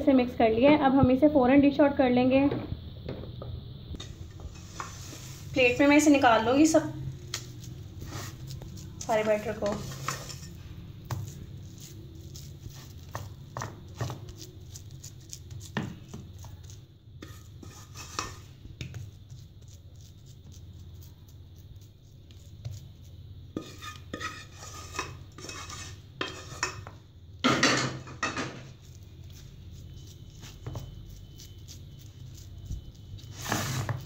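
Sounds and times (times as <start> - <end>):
wooden spoon scraping a tray: 4.4 - 6.8, 7.4 - 14.2, 17.2 - 18.5, 23.6 - 27.0, 33.2 - 34.0.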